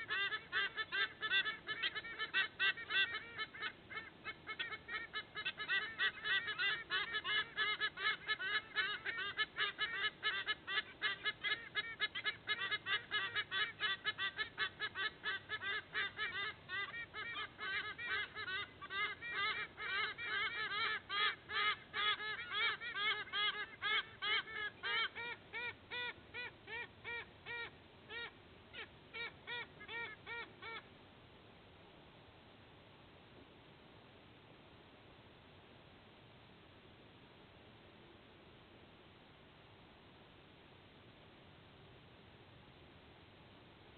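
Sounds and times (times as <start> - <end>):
eagles honking calls: 0.0 - 30.8.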